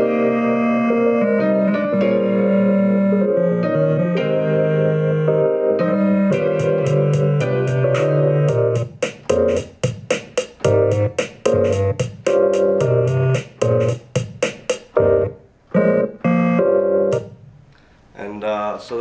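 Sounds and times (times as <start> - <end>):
electric piano chords: 0.0 - 14.3, 15.0 - 17.5
drum machine hits: 6.4 - 15.2, 17.1 - 17.6.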